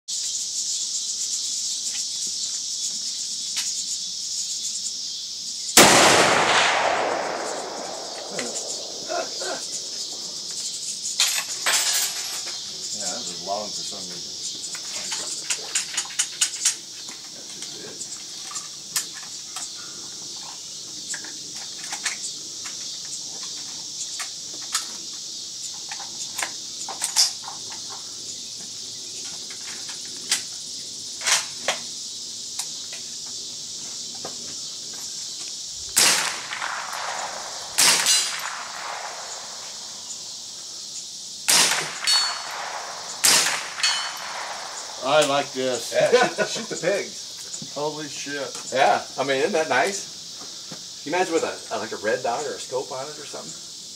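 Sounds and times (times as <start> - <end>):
high insect buzz: 0.1 - 53.9
rifle shots cracking: 5.8 - 10.2, 35.9 - 40.1, 41.5 - 45.5.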